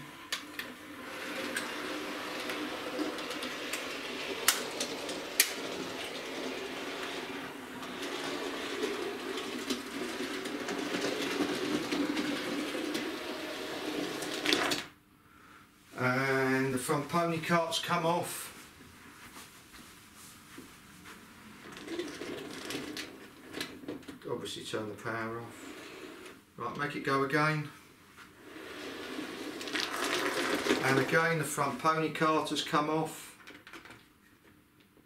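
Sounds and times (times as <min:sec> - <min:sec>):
wheel rumble: 0:00.0 - 0:14.8, 0:28.4 - 0:31.8
model train motor whirr: 0:00.0 - 0:14.9.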